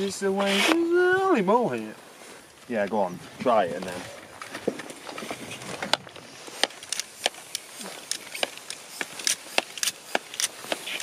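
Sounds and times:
tyre clicks and ticks: 5.8s - 11.0s.

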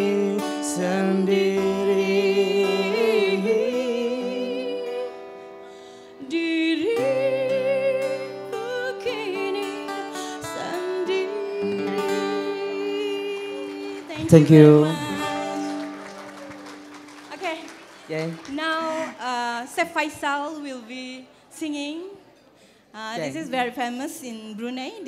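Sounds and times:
woman singing: 0.0s - 5.3s, 6.2s - 15.9s
acoustic guitar: 0.0s - 21.5s.

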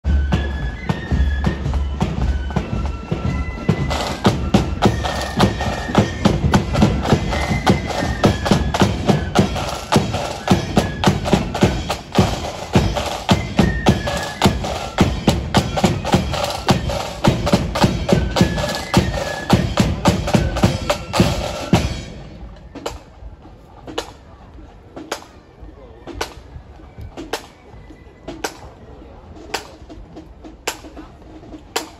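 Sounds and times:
accordion band melody: 0.1s - 22.2s
marching drums beat: 0.1s - 23.2s, 29.4s - 31.9s.

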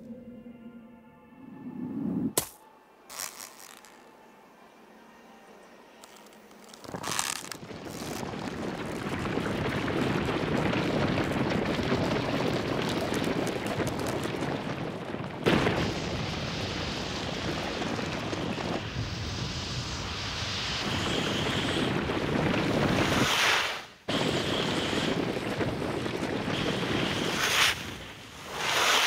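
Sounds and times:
rushing wind-like roar: 7.6s - 23.4s, 24.1s - 29.0s.

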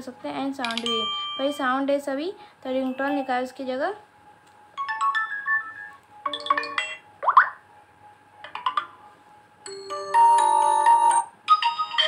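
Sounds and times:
phone notification chimes: 0.6s - 1.6s, 4.8s - 7.4s.

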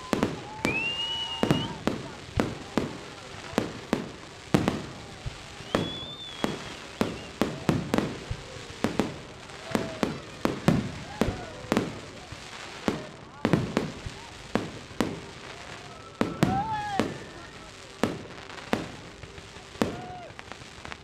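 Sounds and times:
high firework whistle: 0.0s - 2.9s, 3.9s - 12.0s, 14.6s - 18.9s
firework bangs: 0.0s - 21.0s.

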